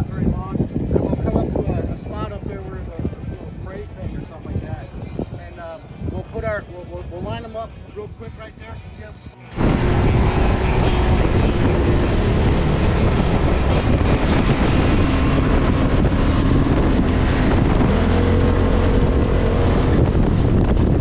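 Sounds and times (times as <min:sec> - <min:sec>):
vehicle engine running: 0:09.4 - 0:21.0.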